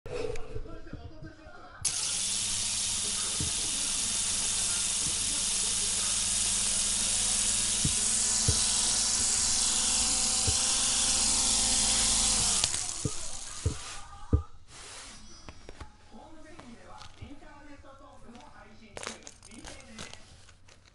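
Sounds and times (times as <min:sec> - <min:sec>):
toy helicopter rotors whirring: 0:01.8 - 0:14.0.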